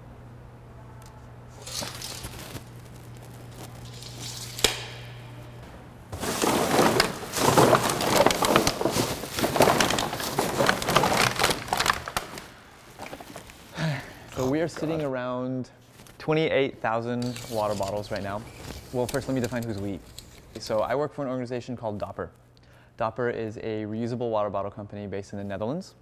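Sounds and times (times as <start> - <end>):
plastic bags rustling: 1.5 - 4.8, 6.1 - 15.1, 17.2 - 20.8
plastic bottles crinkling: 1.6 - 4.8, 6.2 - 15.1, 17.2 - 20.8.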